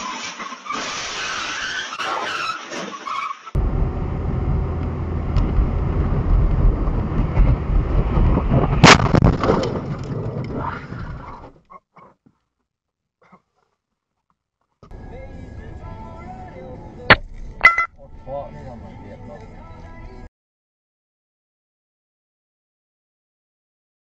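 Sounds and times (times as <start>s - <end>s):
engine and tyre rumble: 3.6s - 8.9s.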